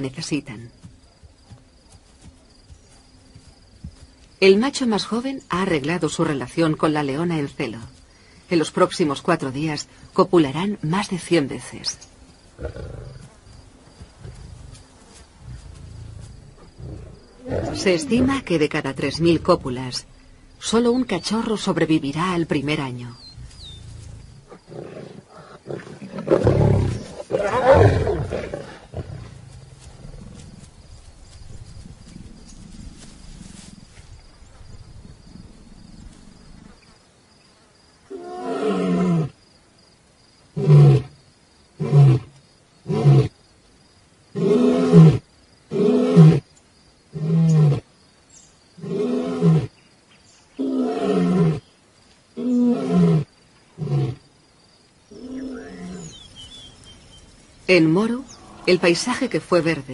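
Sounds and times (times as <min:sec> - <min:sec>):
lion roaring: 0:12.6 - 0:13.2, 0:15.6 - 0:18.5, 0:55.1 - 0:56.2.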